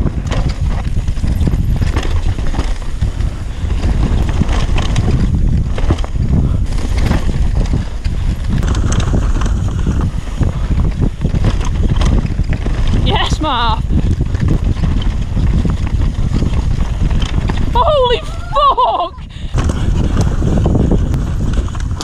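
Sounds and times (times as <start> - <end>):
bike chain and frame clattering: 0.0 - 22.0
wind rumble on microphone: 0.0 - 22.0.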